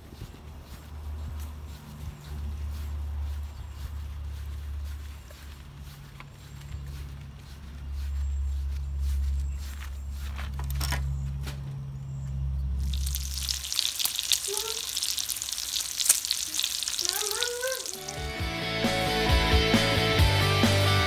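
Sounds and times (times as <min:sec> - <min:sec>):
bacon sizzling in a skillet: 0:12.8 - 0:18.3.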